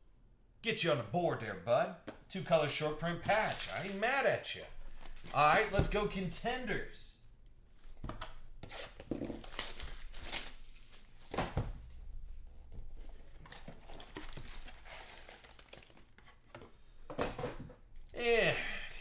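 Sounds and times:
plastic wrap crinkling and tearing: 3.2s - 4.2s, 9.0s - 11.2s, 13.6s - 16.4s.

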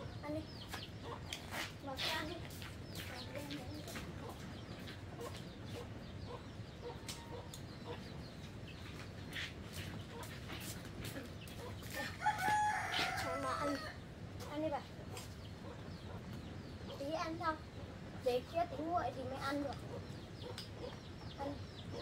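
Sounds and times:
chickens clucking: 0.0s - 22.0s
rooster crowing: 12.0s - 14.0s.

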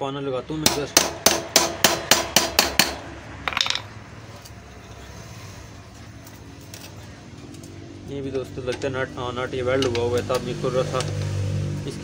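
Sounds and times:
hammer striking metal spanner: 0.6s - 3.9s.

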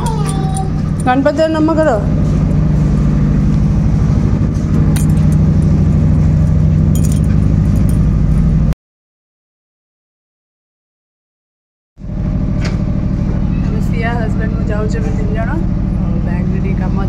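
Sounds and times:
keys clinking: 0.0s - 1.3s, 4.9s - 5.7s, 6.9s - 8.1s
engine idling: 0.0s - 8.7s, 12.0s - 17.0s.

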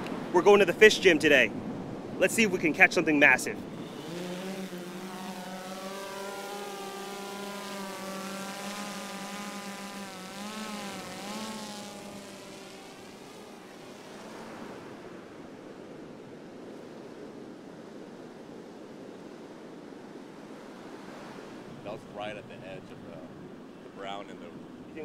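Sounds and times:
drone motors humming: 3.6s - 15.5s.

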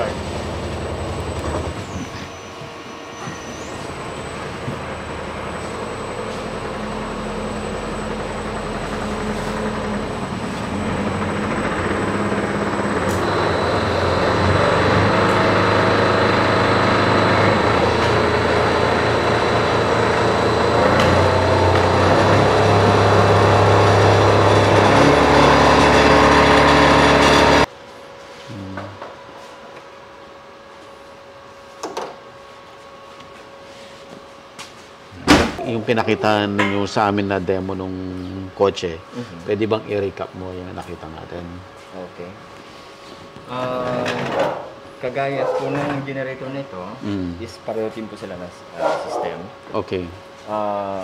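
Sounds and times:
high whine: 0.0s - 31.2s
electric motor humming: 3.7s - 27.7s.

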